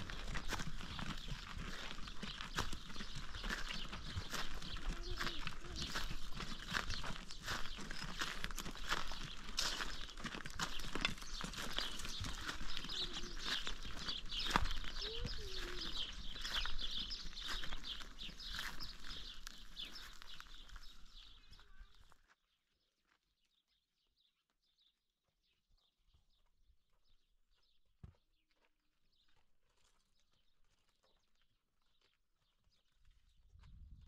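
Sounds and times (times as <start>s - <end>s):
donkey hooves clicking: 0.0s - 22.0s
birds chirping: 0.0s - 22.2s
footsteps on dirt path: 0.0s - 23.6s, 26.0s - 34.0s
low wind rumble: 33.5s - 34.0s.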